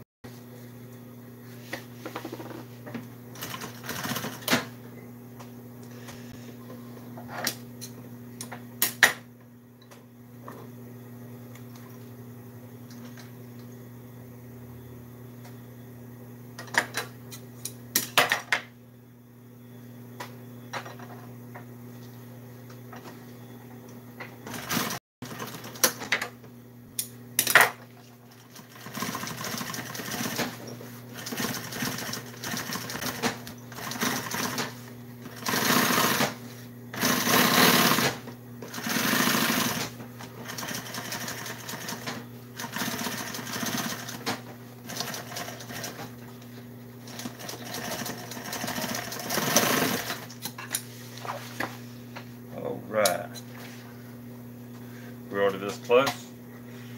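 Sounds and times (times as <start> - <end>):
sewing machine stitching: 35.3 - 36.4, 37.0 - 46.0, 47.0 - 50.3
sewing machine motor humming: 35.3 - 46.0, 47.0 - 50.3.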